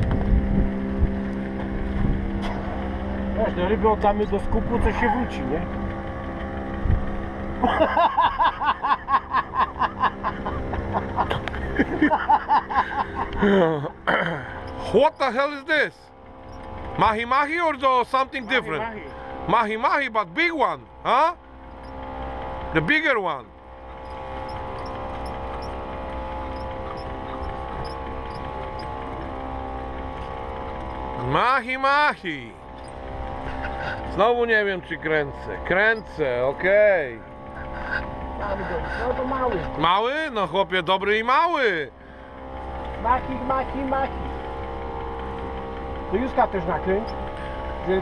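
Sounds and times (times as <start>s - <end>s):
outboard motor humming: 0.0s - 48.0s
man laughing: 7.6s - 14.6s, 33.4s - 34.2s, 37.5s - 39.8s
faint high squeak: 26.5s - 28.9s.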